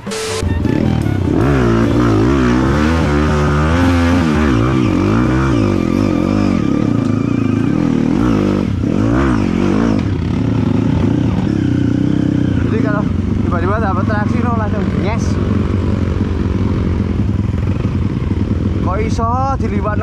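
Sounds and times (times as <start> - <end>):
dirt bike engine revving: 0.0 - 19.2.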